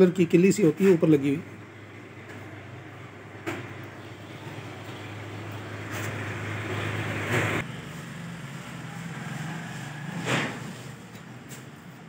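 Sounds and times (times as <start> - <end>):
scrape or rustle: 9.2 - 11.9.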